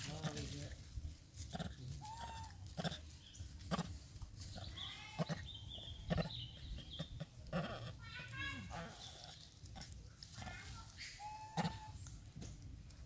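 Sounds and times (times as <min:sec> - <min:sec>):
dry leaves crunching: 0:00.0 - 0:05.2, 0:08.0 - 0:12.3
macaques squeaky calls: 0:02.0 - 0:03.0, 0:10.6 - 0:12.3.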